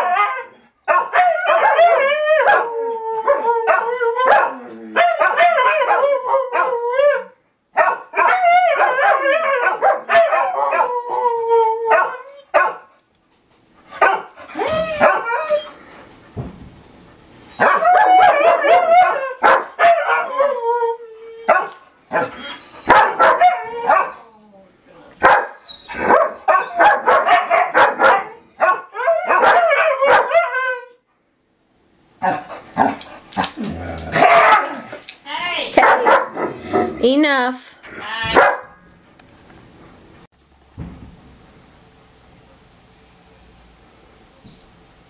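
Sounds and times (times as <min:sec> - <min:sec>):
dogs howling: 0:00.0 - 0:07.4, 0:08.2 - 0:12.7, 0:14.5 - 0:15.8, 0:17.5 - 0:24.3, 0:25.9 - 0:31.0, 0:33.4 - 0:35.0
dogs barking and yipping: 0:00.0 - 0:11.3, 0:11.9 - 0:12.9, 0:13.9 - 0:15.8, 0:17.4 - 0:20.7, 0:21.3 - 0:24.2, 0:25.2 - 0:30.9, 0:32.2 - 0:35.1, 0:35.8 - 0:36.6, 0:38.3 - 0:38.8.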